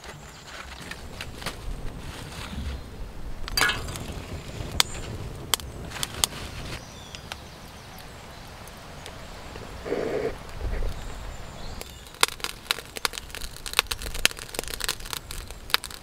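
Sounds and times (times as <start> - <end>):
fire rushing: 0.7 - 16.0
charcoal clinking into metal stove: 3.5 - 5.6.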